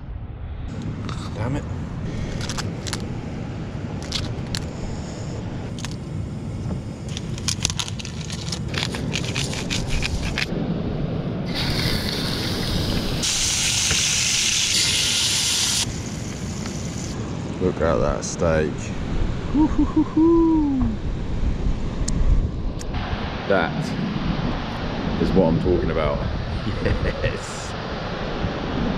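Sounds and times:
food packaging crackling: 2.3s - 3.1s, 4.0s - 4.7s, 7.1s - 10.5s
steak sizzling in frying pan: 13.2s - 15.8s.

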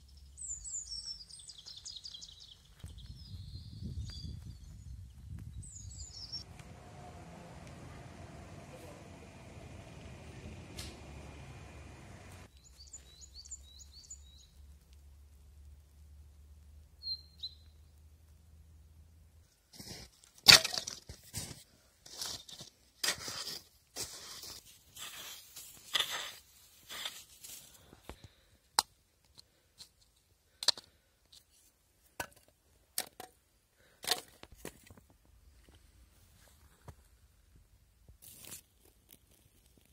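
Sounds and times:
bird chirp: 0.0s - 6.5s, 12.4s - 14.6s, 17.0s - 17.9s
firewood sticks clacking: 20.4s - 21.2s.

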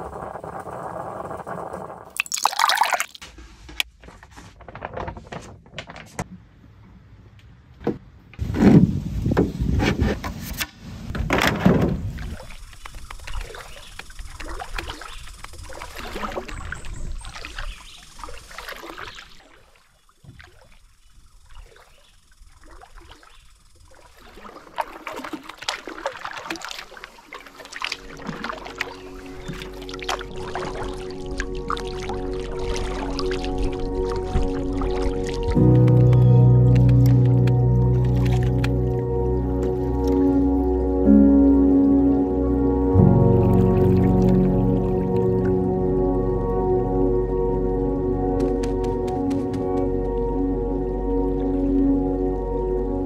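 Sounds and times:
water lapping at hull: 11.9s - 36.1s
paddle strokes in water: 12.0s - 40.7s.

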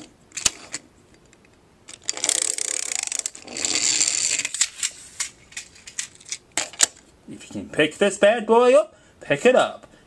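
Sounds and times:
toy car wheels rolling on wood: 2.0s - 4.6s.

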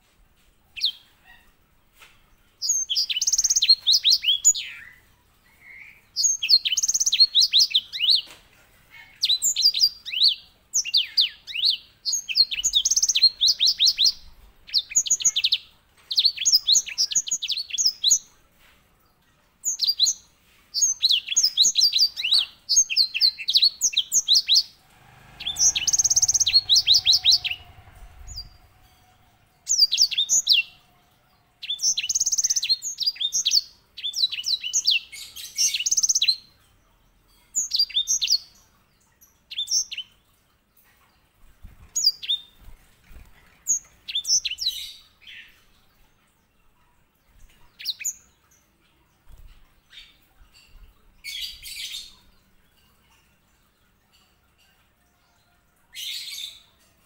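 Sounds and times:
low rumble: 24.8s - 31.3s.

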